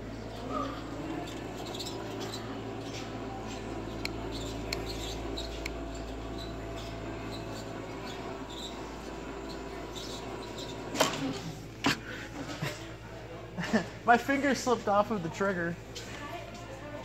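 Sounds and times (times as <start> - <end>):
steady low hum: 0.0 - 14.1
short high squeaks and clicks: 3.9 - 11.0.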